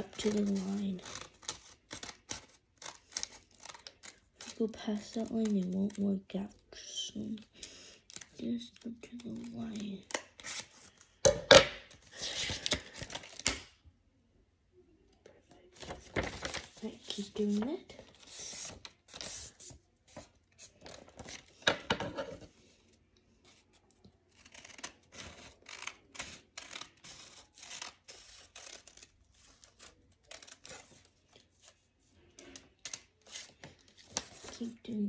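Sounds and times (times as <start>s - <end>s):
scissors snipping paper: 0.0s - 6.1s, 7.2s - 10.7s, 24.3s - 31.0s.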